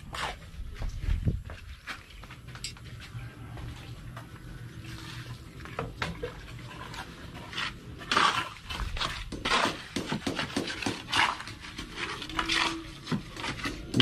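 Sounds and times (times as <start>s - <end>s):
trowel scraping on concrete blocks: 7.4s - 14.0s.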